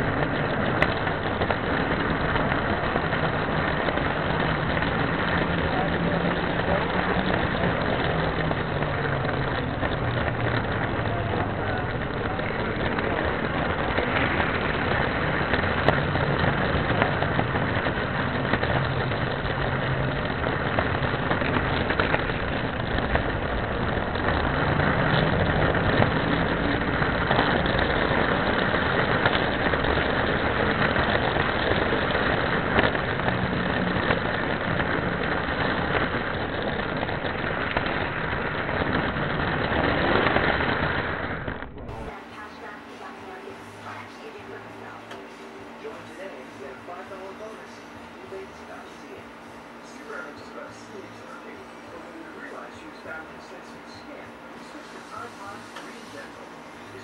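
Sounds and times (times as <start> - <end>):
model train motor hum: 0.0 - 41.4
model train wheels on rails: 0.0 - 49.2, 49.8 - 57.0.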